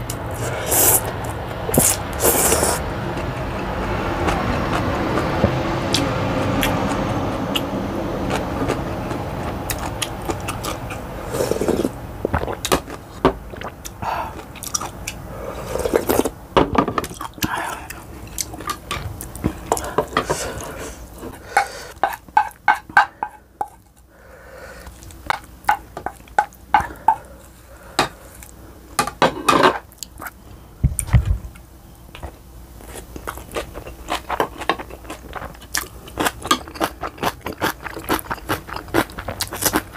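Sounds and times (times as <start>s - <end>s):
noisy noodle slurping: 0.3s - 5.2s, 9.7s - 12.8s, 13.5s - 16.3s.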